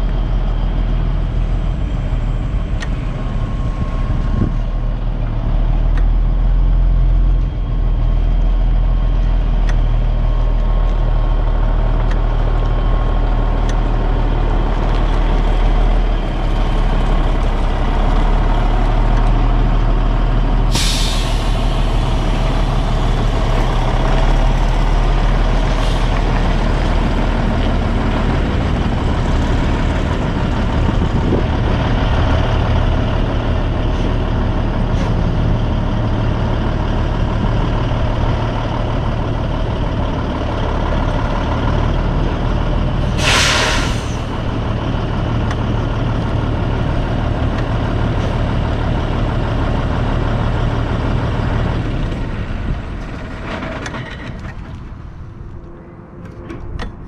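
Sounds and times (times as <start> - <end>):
diesel engine running slowly: 0.0 - 57.0
air brake hisses: 20.7 - 22.2, 43.0 - 44.4.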